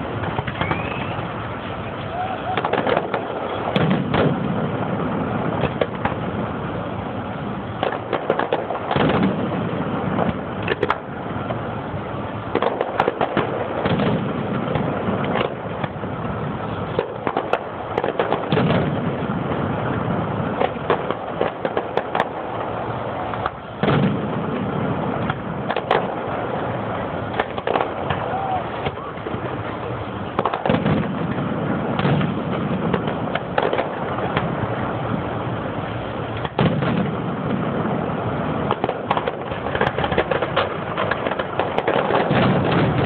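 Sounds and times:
firework shell booming: 0:00.0 - 0:43.0
fireworks crackling: 0:00.0 - 0:43.0.

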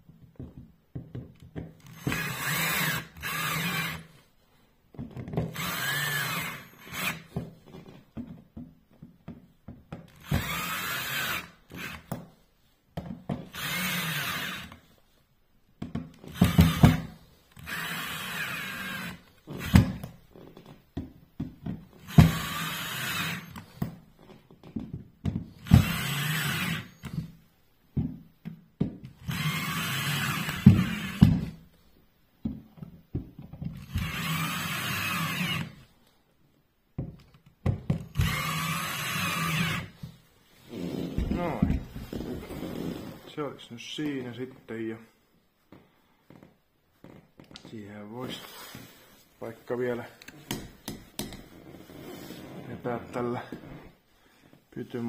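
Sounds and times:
cordless drill driving screws: 0:01.8 - 0:04.1, 0:05.5 - 0:07.4, 0:10.1 - 0:12.2, 0:13.5 - 0:14.9, 0:16.2 - 0:20.1, 0:22.0 - 0:23.9, 0:25.6 - 0:27.4, 0:29.1 - 0:31.6, 0:33.8 - 0:35.9, 0:38.0 - 0:40.1.

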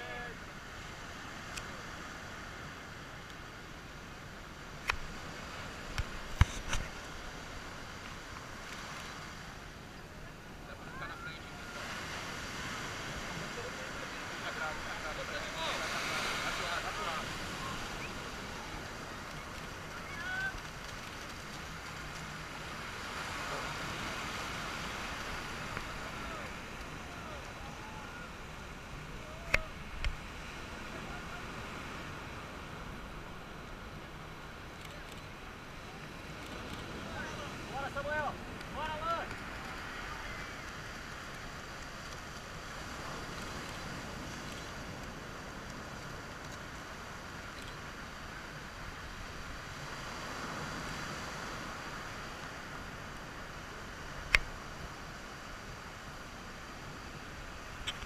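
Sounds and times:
surf rushing: 0:00.0 - 0:58.0
wind: 0:00.0 - 0:58.0
faint distant shouts and voices: 0:25.8 - 0:29.9.

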